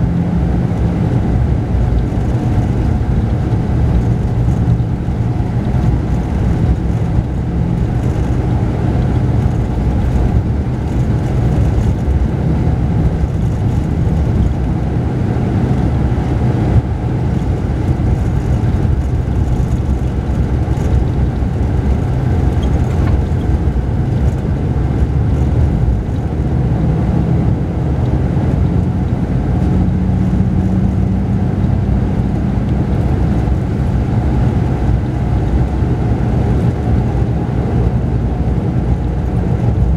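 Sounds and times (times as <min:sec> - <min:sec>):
coach engine cruising: 0:00.0 - 0:39.9
tyre and road noise: 0:00.0 - 0:39.9.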